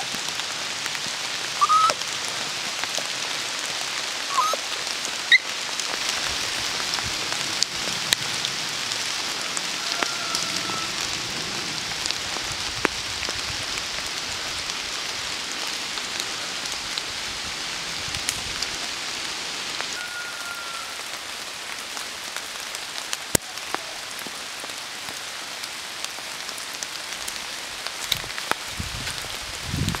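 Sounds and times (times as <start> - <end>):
rain pattering on leaves: 0.0 - 30.0
whistled calls: 1.6 - 2.0, 4.3 - 4.6, 20.0 - 21.0.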